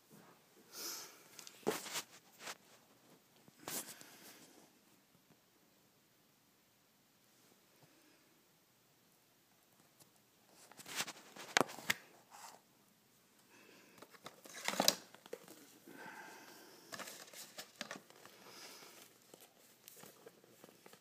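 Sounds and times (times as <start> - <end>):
cellophane and cardboard crinkling: 1.4 - 2.9, 10.5 - 12.6, 14.0 - 15.9, 16.9 - 21.0.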